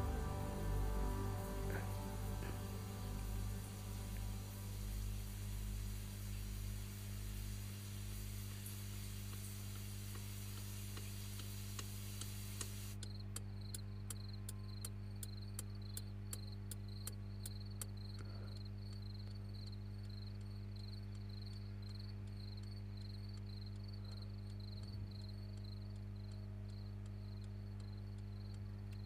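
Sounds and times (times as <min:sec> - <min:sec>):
low hum: 0:00.0 - 0:10.9
static hiss: 0:00.0 - 0:13.2
turn signal ticking: 0:11.0 - 0:29.0.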